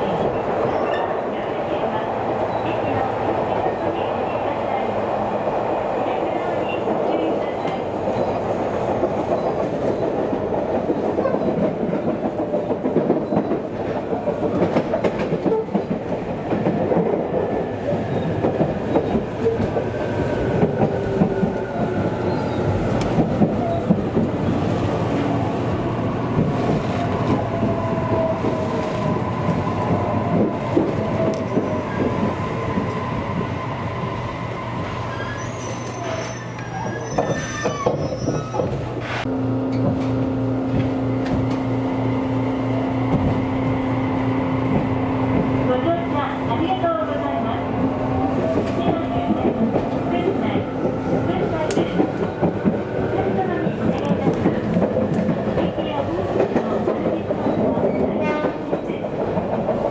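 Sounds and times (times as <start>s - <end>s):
train wheel and rail noise: 0.0s - 59.9s.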